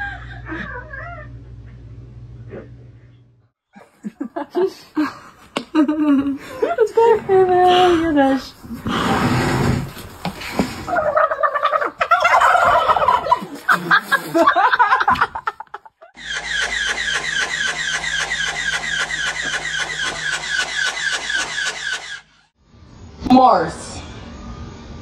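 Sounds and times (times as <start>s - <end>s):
steady low hum: 0.0s - 12.0s
turkeys gobbling: 10.8s - 13.7s, 16.2s - 22.2s.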